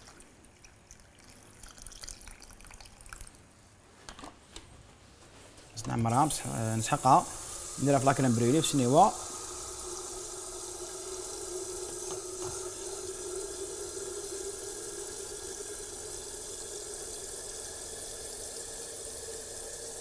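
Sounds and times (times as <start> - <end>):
tap water filling kettle: 5.8 - 20.0.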